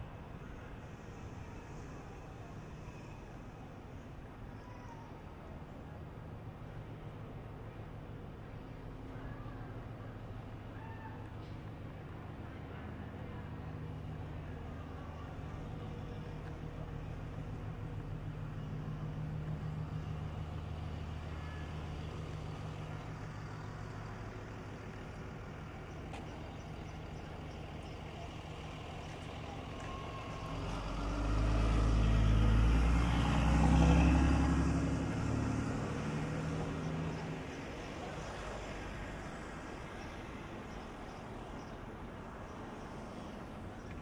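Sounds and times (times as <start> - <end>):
engine idling: 5.3 - 44.0
vehicle driving past: 28.4 - 40.8.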